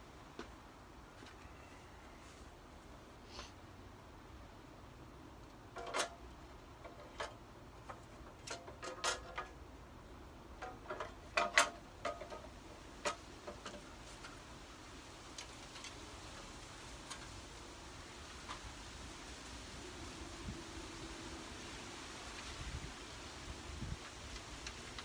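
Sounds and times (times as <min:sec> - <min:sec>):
plastic parts clicking and tapping: 0:05.7 - 0:09.6, 0:10.5 - 0:14.4.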